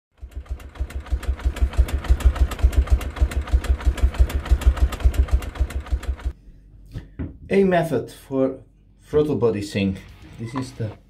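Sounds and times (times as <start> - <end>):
motorcycle engine idling: 0.2 - 6.3.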